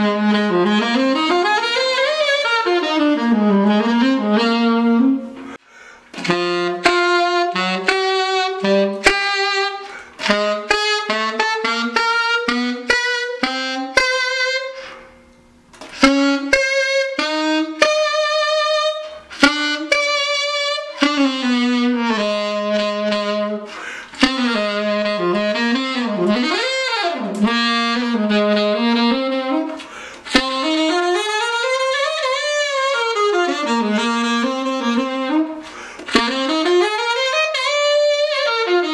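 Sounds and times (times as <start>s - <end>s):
alto saxophone melody: 0.0s - 38.9s.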